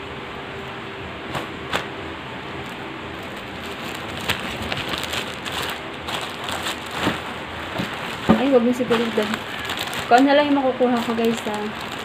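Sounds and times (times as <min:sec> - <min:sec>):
electric fan hiss: 0:00.0 - 0:12.0
cotton shirt rustling: 0:02.6 - 0:12.0
plastic packaging crinkling: 0:02.6 - 0:12.0.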